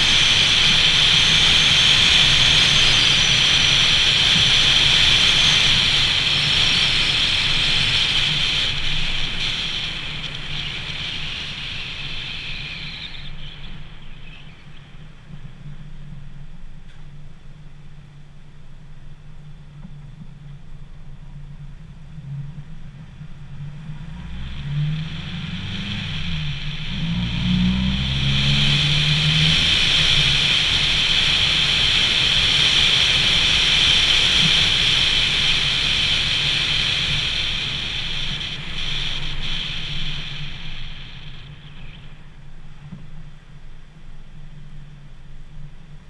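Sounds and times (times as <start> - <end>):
road and wind rushing noise: 0.0 - 16.8, 21.4 - 46.0
pickup truck engine accelerating: 23.5 - 42.3.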